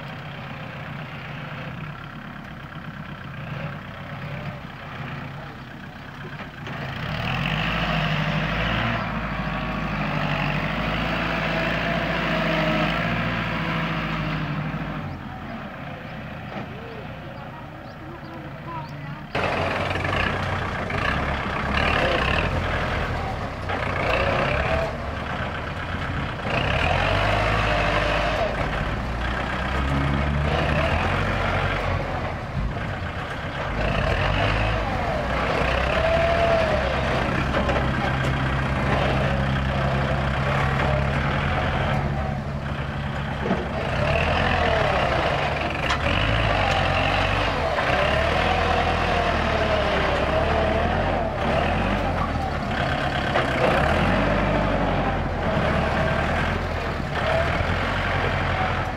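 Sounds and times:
tractor diesel engine under load: 0:00.0 - 0:58.9
blade pushing soil: 0:19.4 - 0:58.9.

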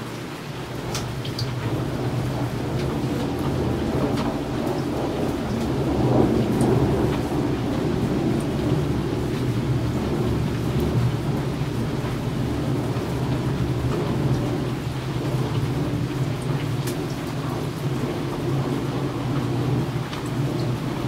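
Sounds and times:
low rumble of thunder: 0:00.0 - 0:21.0
steady rain: 0:00.0 - 0:21.0.

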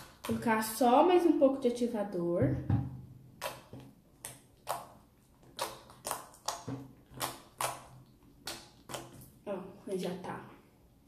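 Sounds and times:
slime kneaded making wet clicks: 0:03.4 - 0:09.3.

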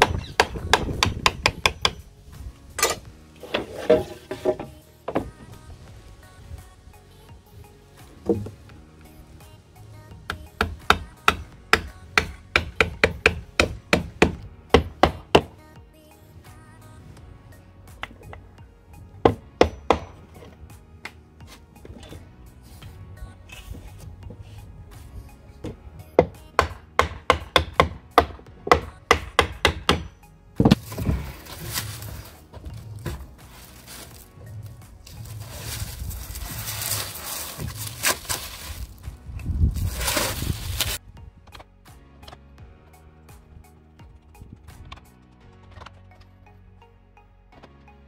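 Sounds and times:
background music: 0:00.0 - 0:48.0
hammer striking pins into wood: 0:26.2 - 0:31.1.

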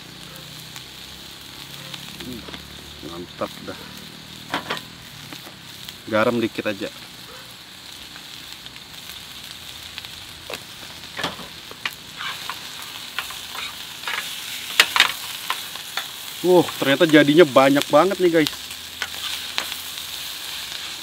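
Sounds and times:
meat sizzling in a frying pan: 0:00.0 - 0:21.0
tongs clinking and scraping pan: 0:11.2 - 0:20.9.

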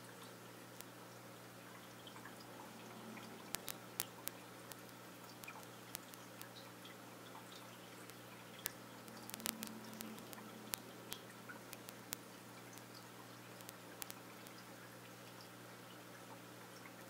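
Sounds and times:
aquarium equipment humming: 0:00.0 - 0:17.0
faint water hiss: 0:00.0 - 0:17.0
water drips: 0:00.0 - 0:17.0
sharp clicks: 0:03.4 - 0:06.6, 0:08.1 - 0:13.0, 0:13.6 - 0:14.6.

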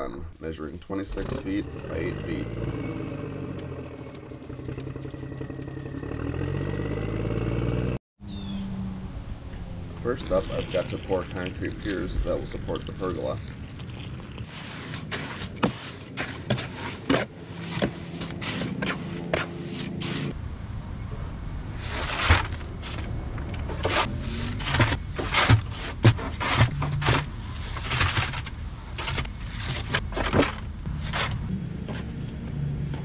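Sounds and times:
hand tools scraping and knocking: 0:14.4 - 0:20.3, 0:23.7 - 0:33.0.

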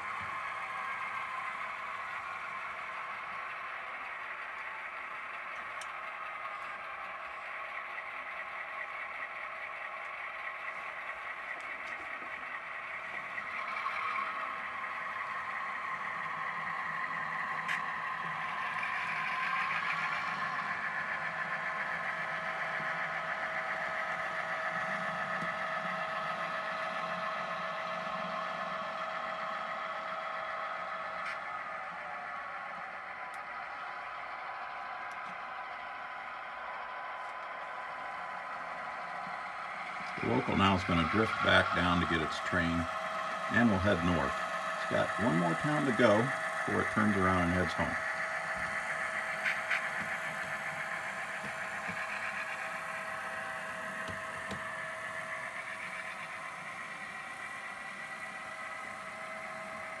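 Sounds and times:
model train engine running: 0:00.0 - 1:00.0.

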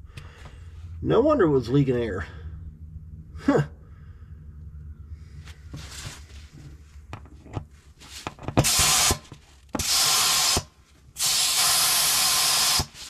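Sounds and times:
compressed air hissing: 0:08.6 - 0:09.2, 0:09.8 - 0:13.0.

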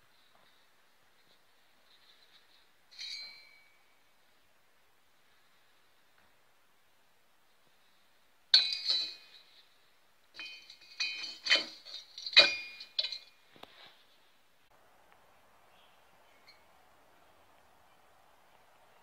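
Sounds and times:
metal parts clinking: 0:08.6 - 0:09.6, 0:10.4 - 0:13.4.

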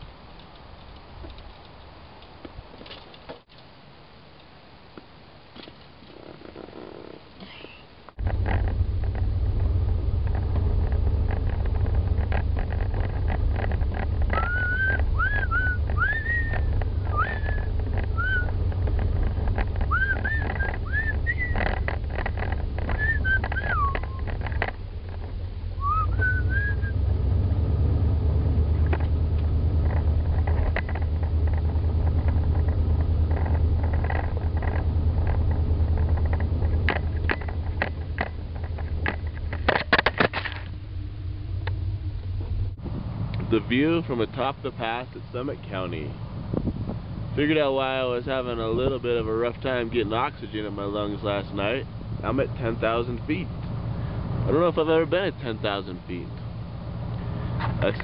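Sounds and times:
engine and road rumble: 0:00.0 - 0:58.0
rattles and knocks: 0:08.2 - 0:25.5, 0:28.7 - 0:40.8
high chirping notes: 0:14.4 - 0:18.6.

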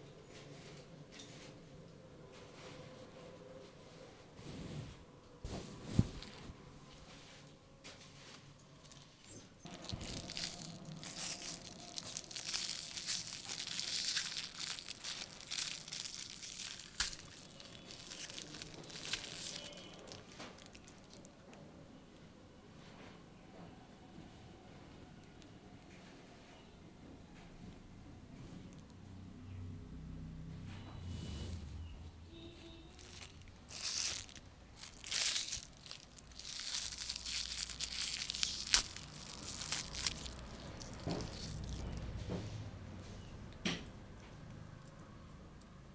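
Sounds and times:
aluminium foil crinkling and tearing: 0:08.8 - 0:21.4, 0:32.8 - 0:42.2.

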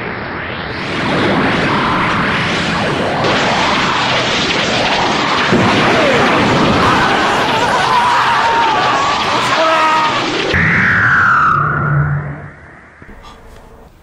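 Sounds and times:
energy beam blast: 0:00.0 - 0:14.0
wavering whistle-like tone: 0:08.4 - 0:14.0.

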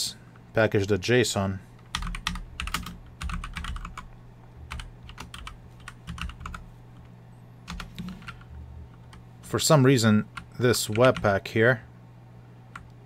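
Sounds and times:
keyboard typing: 0:01.9 - 0:04.1, 0:04.7 - 0:07.1, 0:07.7 - 0:09.2, 0:10.3 - 0:11.3.

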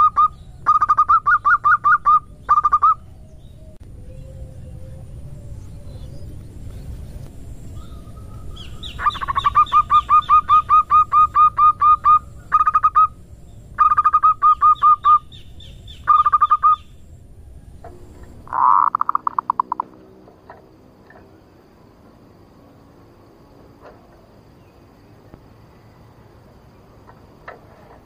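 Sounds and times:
dove calling in short rising notes: 0:07.8 - 0:13.2.

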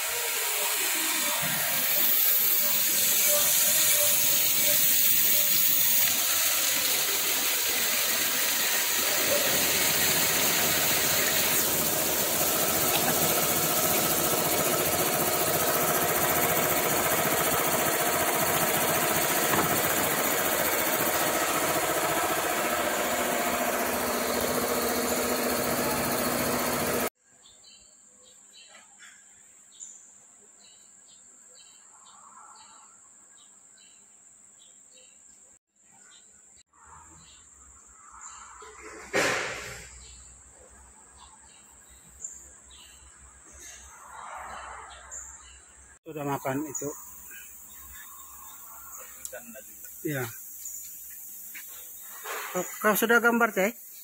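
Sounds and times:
grinding wheel and coolant hiss: 0:00.0 - 0:27.1, 0:46.1 - 0:54.0
machine hum: 0:01.4 - 0:27.1.

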